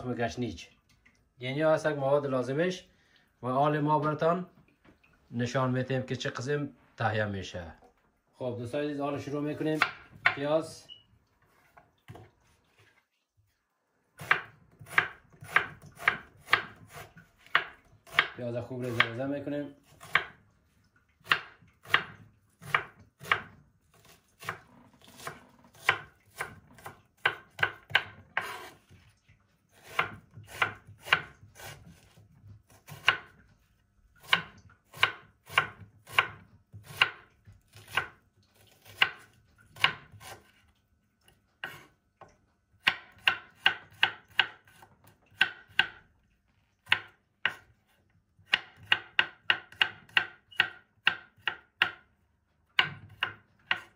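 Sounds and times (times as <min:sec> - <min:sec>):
knife chopping on wooden board: 0:09.7 - 0:10.5, 0:14.2 - 0:19.2, 0:19.9 - 0:20.4, 0:21.2 - 0:28.8, 0:29.8 - 0:33.4, 0:34.2 - 0:40.6, 0:42.8 - 0:46.0, 0:46.8 - 0:47.7, 0:48.4 - 0:52.1, 0:52.8 - 0:53.9.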